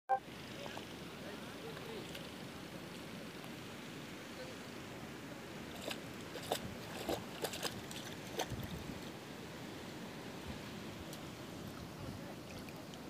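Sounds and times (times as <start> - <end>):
footsteps splashing in water: 5.8 - 8.7.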